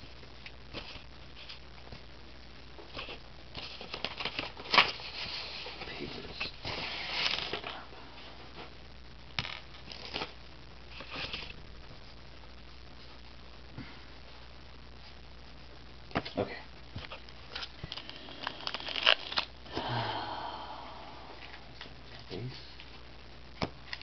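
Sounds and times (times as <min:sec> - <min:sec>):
wrapper crinkling rustles: 0:02.9 - 0:07.8, 0:09.4 - 0:11.6, 0:17.0 - 0:19.6.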